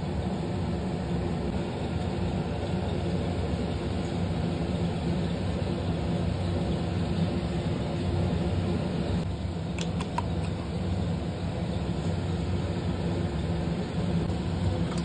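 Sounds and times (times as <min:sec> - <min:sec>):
low machine hum: 0:00.0 - 0:15.0
light clicks: 0:09.7 - 0:10.6.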